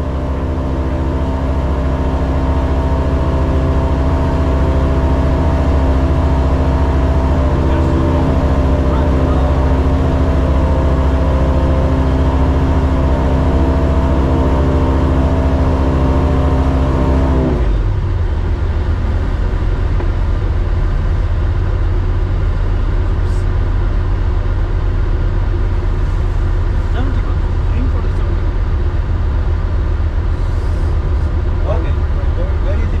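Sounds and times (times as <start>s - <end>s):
light aircraft piston engine: 0.0s - 33.0s
rush of airflow: 28.6s - 31.6s.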